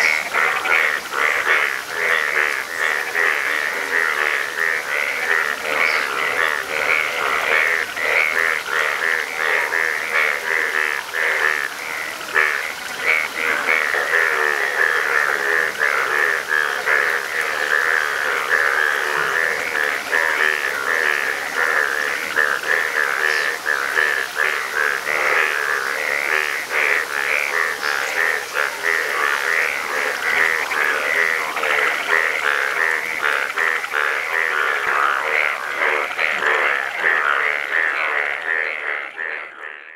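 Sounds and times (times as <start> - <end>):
chorus of bullfrogs croaking: 0.0 - 39.9.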